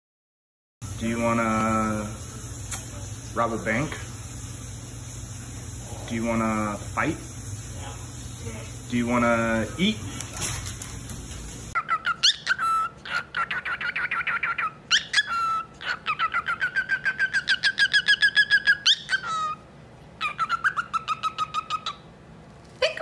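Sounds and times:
baby bird peeping: 20.2s - 22.0s.

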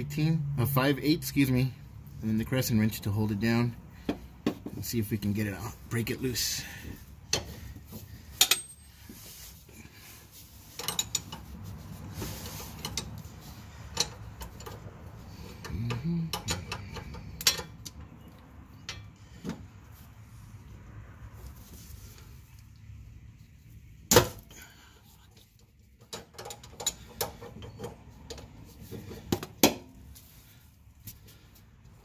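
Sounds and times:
metal wrenches clicking and knocking: 8.3s - 8.9s, 10.7s - 11.6s, 12.4s - 19.6s, 25.5s - 29.8s.

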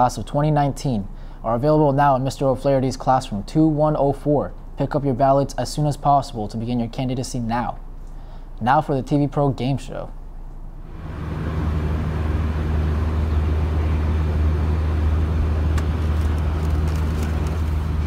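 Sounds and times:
car engine idling: 10.8s - 18.0s.

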